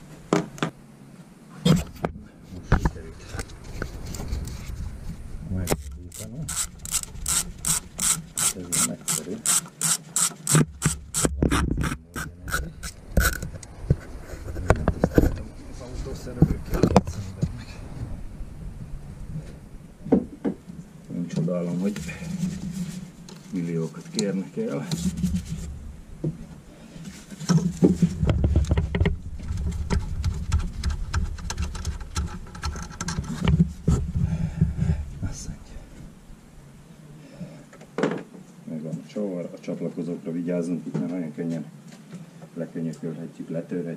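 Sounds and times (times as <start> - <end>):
rubbing against hoses and wiring: 1.6 - 17.6, 21.7 - 25.8
irregular clicks and knocks: 5.6 - 14.0, 27.4 - 34.1
ratchet wrench clicking: 5.7 - 11.3.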